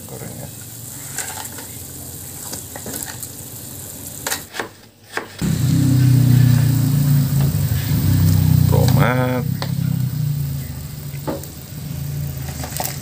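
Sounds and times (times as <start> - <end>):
low motor engine hum: 5.4 - 13.0
broth bubbling at a simmer: 5.5 - 13.0.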